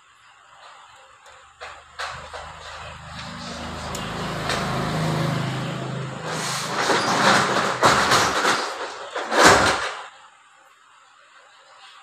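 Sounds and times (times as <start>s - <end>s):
plastic scraping and knocking: 1.6s - 10.0s
low hum: 2.0s - 8.4s.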